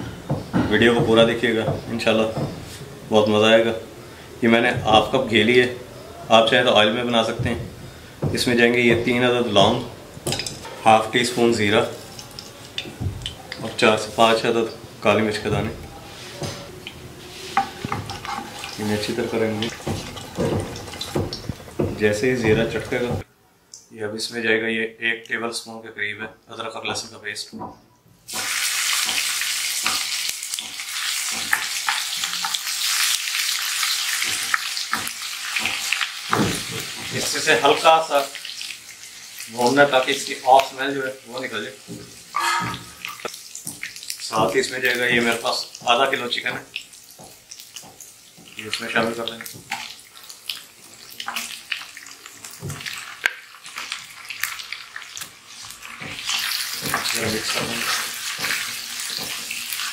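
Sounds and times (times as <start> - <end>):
wooden spoon scraping a pan: 15.5 - 23.2
paste sizzling in hot oil: 17.2 - 21.8, 28.3 - 59.9.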